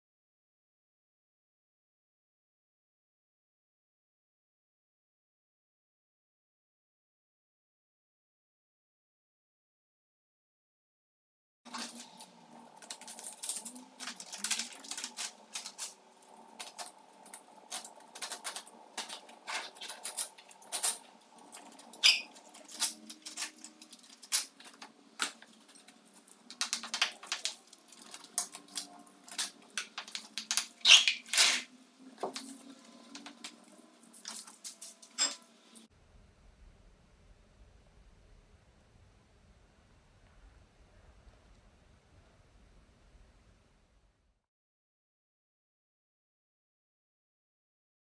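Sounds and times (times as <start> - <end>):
screed crumbs being scraped out: 26.7 - 31.7.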